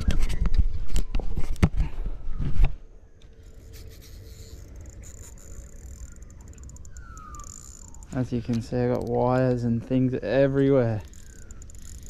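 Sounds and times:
handling fishing rod and line: 3.2 - 10.0, 10.8 - 12.0.

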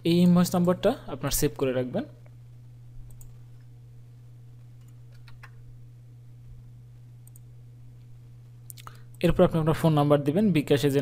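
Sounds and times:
low electrical hum: 0.0 - 11.0
computer mouse clicks: 3.1 - 3.4, 4.8 - 5.6, 7.2 - 7.5.

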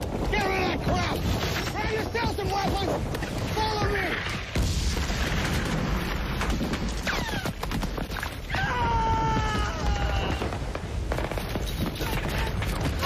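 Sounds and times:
rumble of explosions: 0.0 - 13.0
gunshots: 10.3 - 13.0.

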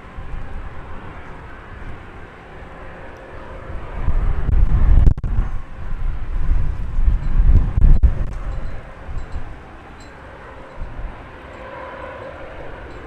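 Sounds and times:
jet engines roaring: 0.0 - 13.0.

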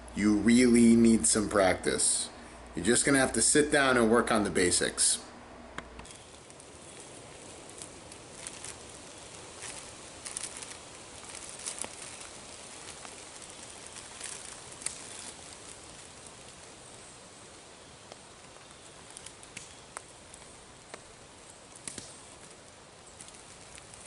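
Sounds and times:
steady outdoor hiss: 0.0 - 24.0
rustling and crackling in undergrowth: 6.0 - 24.0.

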